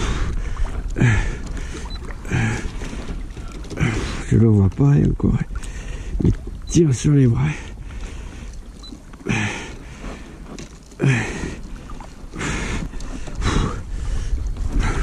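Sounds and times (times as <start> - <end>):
man breathing hard: 0.0 - 2.9, 9.2 - 10.4, 11.0 - 15.0
low wind rumble on microphone: 0.0 - 15.0.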